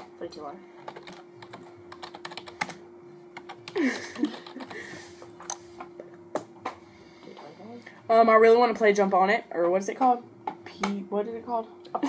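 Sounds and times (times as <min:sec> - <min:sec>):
computer keyboard typing: 0:00.8 - 0:02.8, 0:03.4 - 0:04.8.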